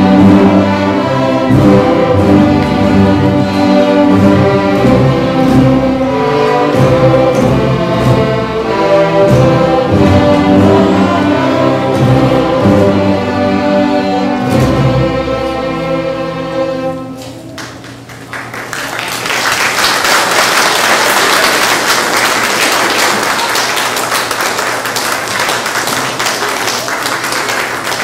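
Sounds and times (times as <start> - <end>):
string orchestra holding a chord: 0.0 - 17.3
audience applause: 17.6 - 28.0.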